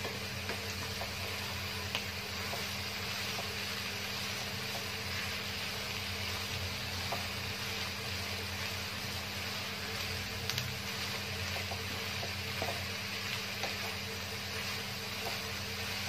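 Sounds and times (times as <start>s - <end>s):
food frying in a wok: 0.0s - 16.0s
spatula ticking on wok: 9.8s - 16.0s.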